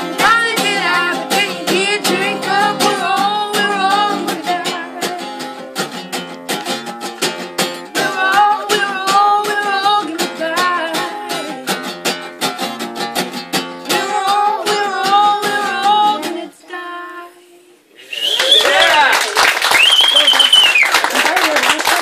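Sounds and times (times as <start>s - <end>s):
woman singing: 0.0s - 5.5s, 7.8s - 12.0s, 13.8s - 17.8s
acoustic guitar strumming: 0.0s - 16.6s
crowd cheering: 18.0s - 22.0s
people clapping: 18.1s - 22.0s.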